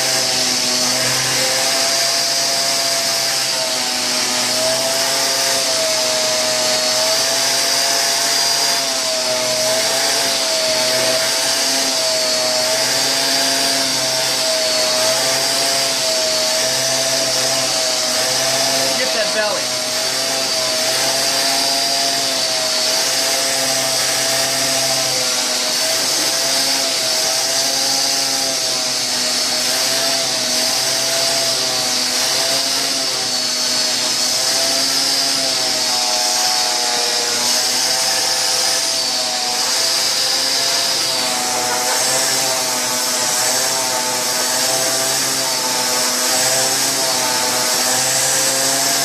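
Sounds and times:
vacuum cleaner running: 0.0 - 49.0.

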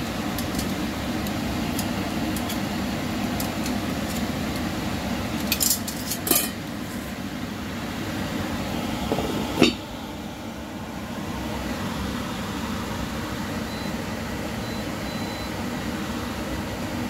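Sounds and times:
cooktop whirring hiss: 0.0 - 17.0
lid clanking on pot: 5.4 - 6.7, 9.1 - 9.8.

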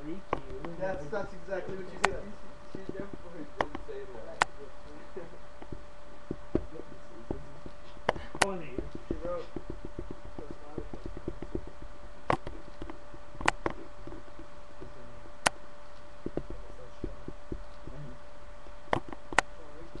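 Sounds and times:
electrical hum: 0.0 - 20.0
sharp clicks: 9.5 - 17.9, 18.9 - 19.6
faint low knocks: 16.2 - 18.0.

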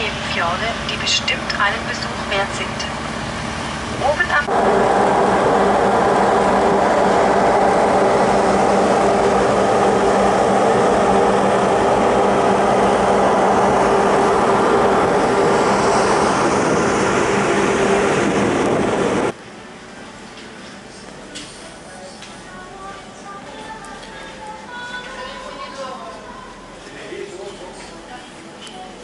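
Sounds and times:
ferry engines droning: 0.0 - 29.0
rush of wind and water: 12.0 - 19.4.

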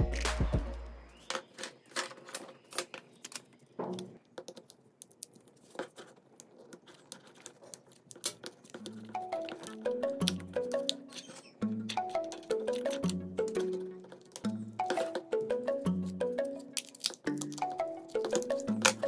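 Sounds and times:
plastic tool clicking and scratching: 1.3 - 9.8.

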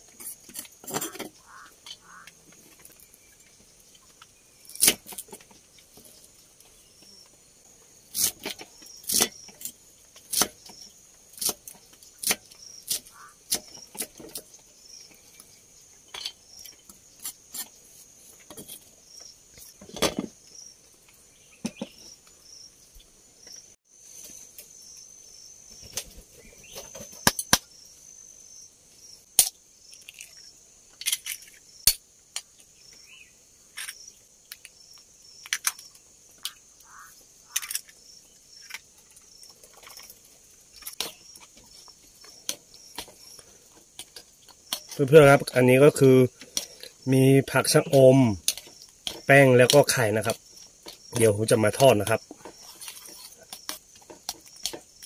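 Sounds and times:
forest insects chorus: 0.0 - 55.0.

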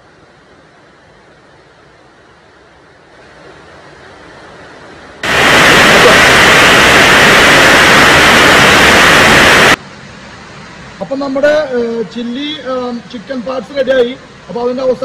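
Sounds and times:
heavy rain on a tiled roof: 0.0 - 11.0
faint rain hiss: 0.0 - 15.0.

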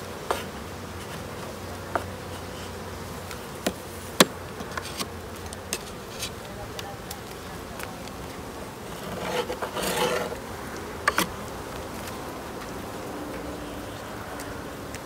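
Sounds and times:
honeybees buzzing: 0.0 - 15.0
wooden frame scraping: 0.3 - 2.9, 3.6 - 6.4, 8.8 - 11.4.

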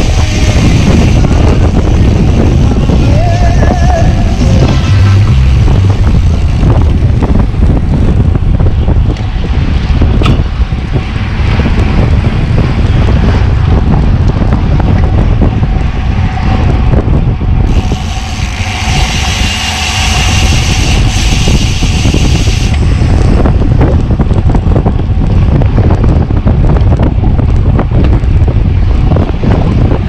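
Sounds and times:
strong wind buffeting microphone: 0.0 - 30.0
rushing hiss: 17.7 - 22.8.

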